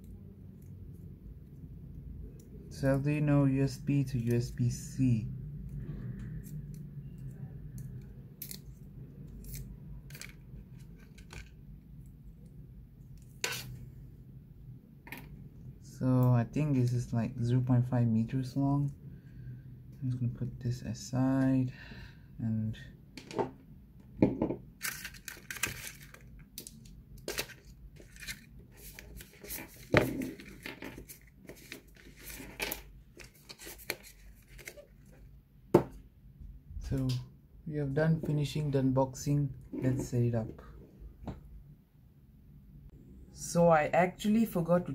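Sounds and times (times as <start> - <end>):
paper and plastic crinkling: 24.8 - 35.0
packaging rustling: 24.8 - 35.1.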